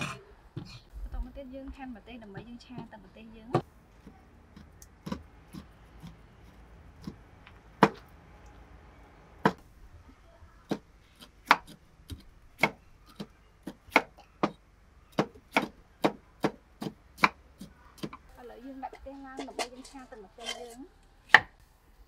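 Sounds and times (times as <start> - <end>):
cleaver chopping on wooden board: 7.8 - 8.0, 10.7 - 18.2.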